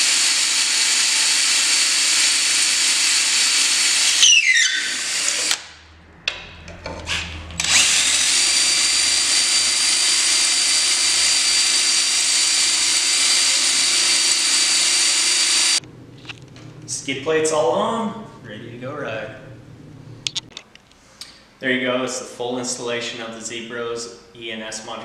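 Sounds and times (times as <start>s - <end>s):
cordless drill drilling metal: 0.0s - 5.7s, 7.1s - 15.8s.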